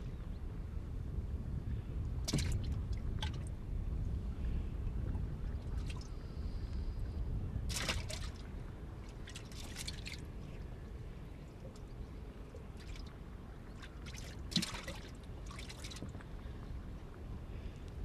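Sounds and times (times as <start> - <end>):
steady low rumble: 0.0 - 18.0
water splashing and dripping: 2.3 - 3.4, 7.7 - 8.4, 9.1 - 10.2, 13.7 - 16.2.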